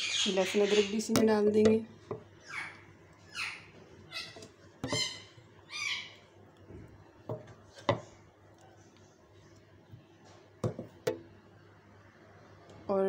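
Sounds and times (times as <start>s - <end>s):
high bird squawks: 0.0s - 1.0s, 2.4s - 6.3s.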